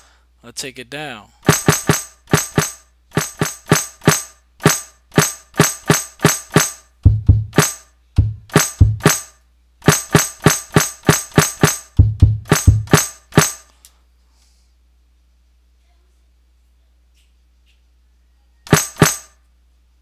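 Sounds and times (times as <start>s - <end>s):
filtered snare drum hits: 1.4s - 13.7s, 18.7s - 19.3s
deep thud: 7.1s - 7.6s, 8.2s - 9.1s, 12.0s - 13.0s.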